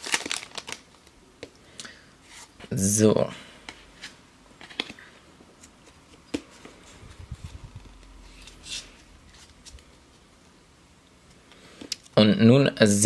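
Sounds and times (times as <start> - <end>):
foil wrapper rustling: 0.0 - 1.1
wrapper crinkle: 0.0 - 1.1.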